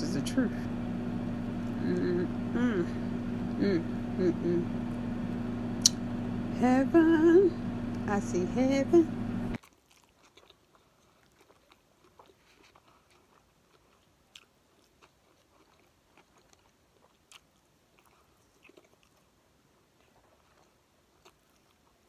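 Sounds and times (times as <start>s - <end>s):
person chewing food: 9.6s - 22.0s.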